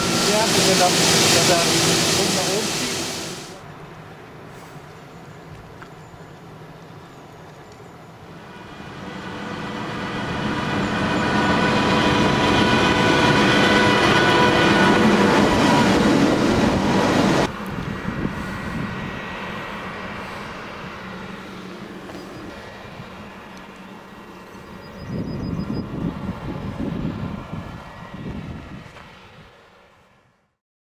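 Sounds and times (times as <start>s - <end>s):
combine harvester engine: 0.0s - 3.6s, 8.2s - 29.9s
steady machine whine: 0.0s - 3.6s, 8.2s - 28.8s.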